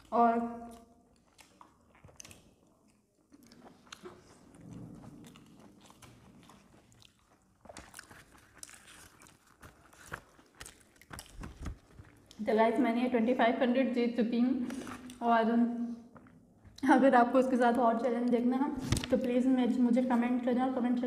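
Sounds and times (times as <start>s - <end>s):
chewing with wet mouth sounds: 0.0s - 12.4s.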